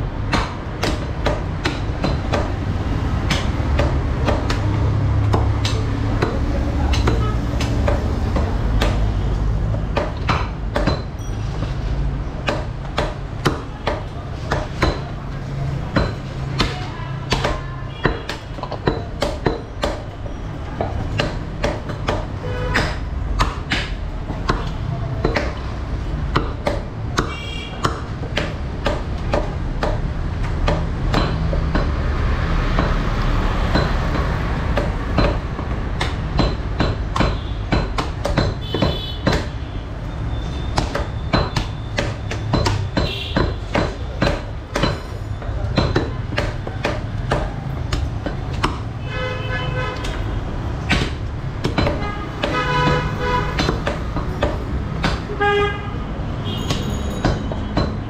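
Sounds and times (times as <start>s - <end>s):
cleaver chopping meat on wood: 0.1s - 11.6s, 12.2s - 49.1s, 49.9s - 55.4s, 56.0s - 58.0s
metallic pings: 10.8s - 11.6s.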